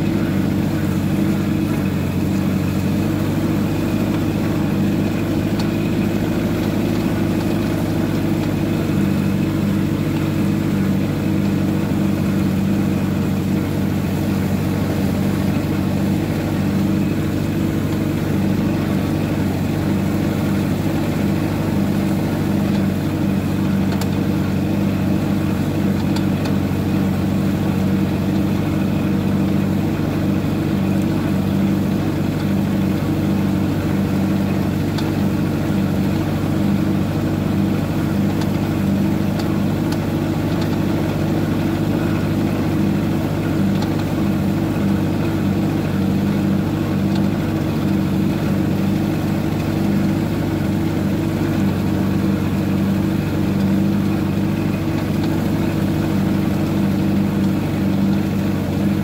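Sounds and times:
tractor engine running: 0:00.0 - 0:59.0.

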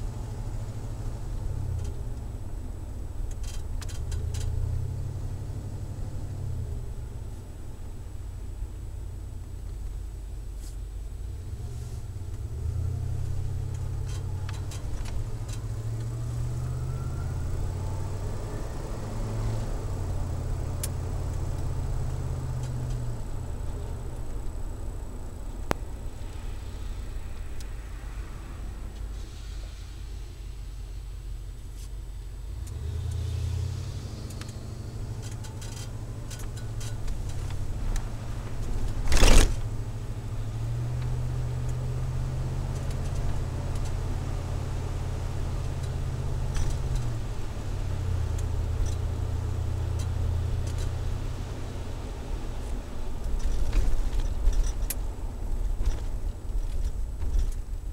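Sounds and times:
low exhaust drone in cabin: 0:00.0 - 0:57.9
light clicks and rattles: 0:03.2 - 0:04.6, 0:13.2 - 0:16.2, 0:34.2 - 0:39.8, 0:45.6 - 0:47.3, 0:48.2 - 0:51.0, 0:52.6 - 0:57.9.

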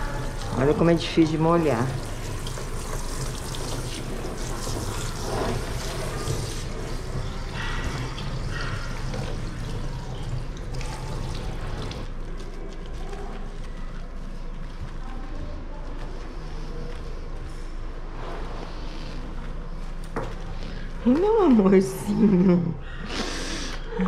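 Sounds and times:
water splashing in a tub: 0:00.0 - 0:13.4.

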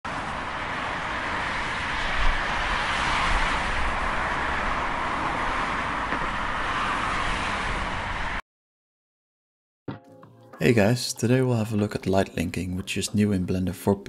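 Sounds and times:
distant road traffic: 0:00.1 - 0:08.4.

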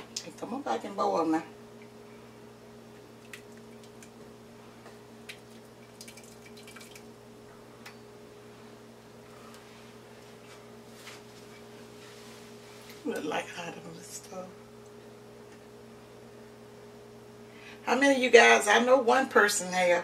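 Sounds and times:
gravy bubbling: 0:05.2 - 0:07.2.

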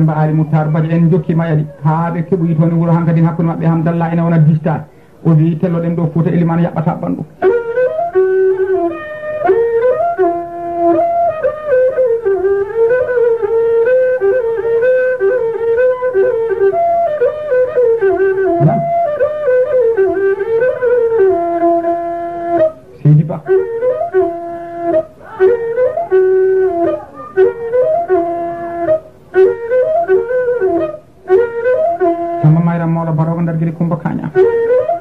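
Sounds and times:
flute playing slow melody: 0:07.4 - 0:22.8, 0:23.4 - 0:32.6, 0:34.4 - 0:35.0.

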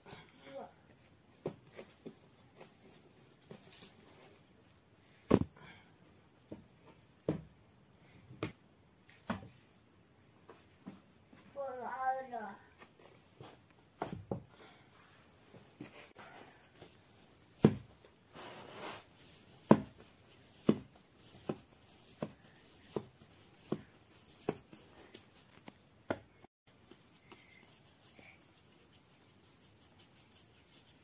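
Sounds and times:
soft thuds of dough pressed: 0:06.4 - 0:07.6, 0:17.6 - 0:18.0.

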